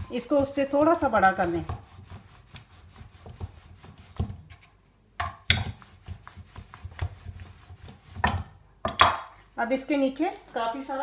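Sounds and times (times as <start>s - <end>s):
rolling pin rubbing on dough: 0.0s - 4.8s, 5.5s - 8.5s
rolling pin knocking on board: 0.3s - 2.1s, 5.2s - 9.3s.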